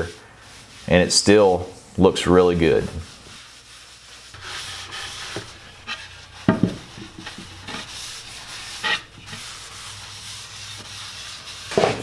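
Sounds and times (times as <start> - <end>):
cloth rubbing on wood: 2.4 - 12.0
wooden knock: 6.5 - 7.6.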